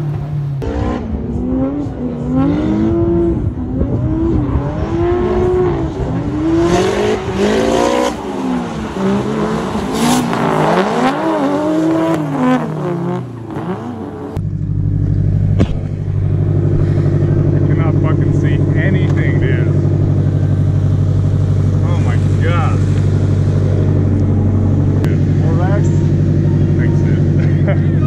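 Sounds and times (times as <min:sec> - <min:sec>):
car engines revving: 0:00.0 - 0:28.0
car engine idling: 0:05.9 - 0:28.0.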